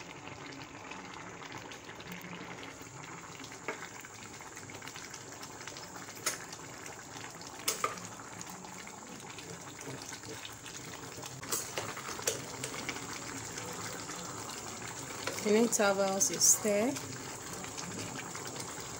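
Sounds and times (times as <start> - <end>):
pot bubbling at a boil: 0.0 - 18.9.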